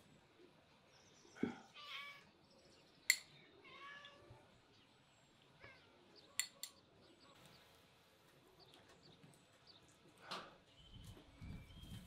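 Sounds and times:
faint bird chirps: 0:08.5 - 0:12.0.

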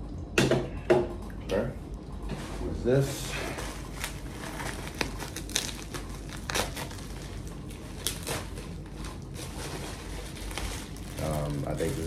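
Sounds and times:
plastic wrap crinkling: 0:03.3 - 0:12.0.

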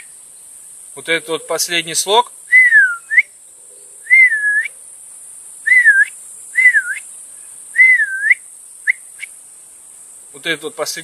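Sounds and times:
man whistling: 0:02.5 - 0:03.3, 0:04.0 - 0:04.7, 0:05.7 - 0:07.1, 0:07.8 - 0:09.3.

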